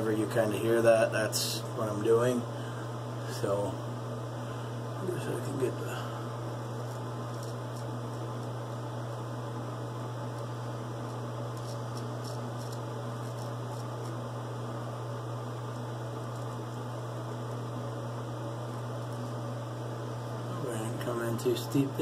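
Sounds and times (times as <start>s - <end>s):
low electrical hum: 0.0s - 22.0s
razor scraping stubble: 5.1s - 9.3s, 10.0s - 14.6s, 15.6s - 17.8s, 18.5s - 21.8s.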